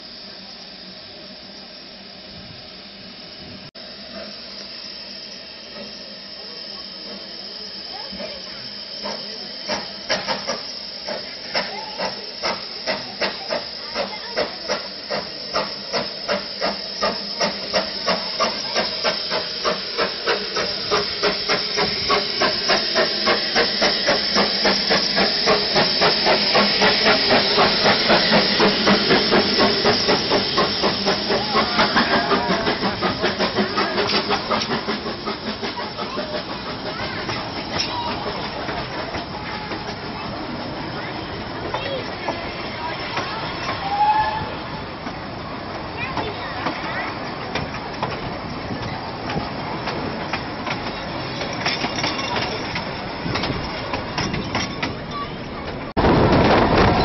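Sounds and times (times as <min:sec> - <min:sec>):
steam hissing: 0:00.0 - 0:57.0
steam locomotive exhaust chuffs: 0:00.0 - 0:57.0.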